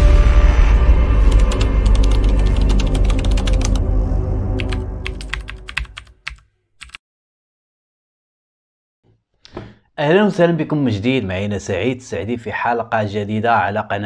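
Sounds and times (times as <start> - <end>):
deep ringing musical hit: 0.0 - 1.9
keyboard typing clicks: 1.4 - 3.8, 4.6 - 7.0.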